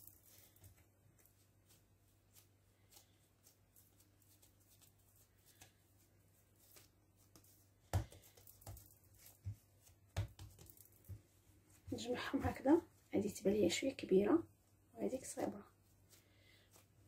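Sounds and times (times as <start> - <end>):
hands handling bread dough: 0.0 - 13.2, 15.5 - 17.0
dough thumping on counter: 9.4 - 11.3.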